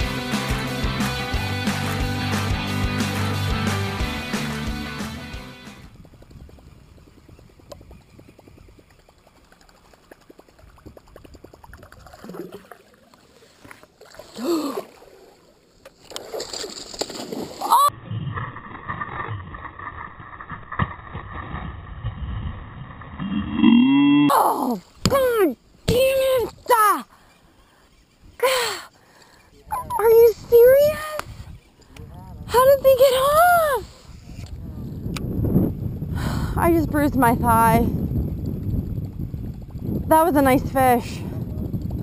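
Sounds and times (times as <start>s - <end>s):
water lapping around boat: 5.9s - 17.8s
people talking: 24.3s - 27.1s, 29.7s - 31.2s, 32.0s - 33.9s, 36.5s - 37.9s, 40.1s - 41.2s.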